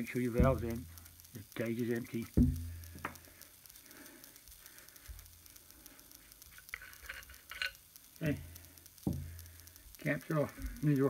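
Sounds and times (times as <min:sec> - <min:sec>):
faint hiss and low hum: 0:00.0 - 0:11.0
metal cap unscrewing clicks: 0:06.7 - 0:07.8.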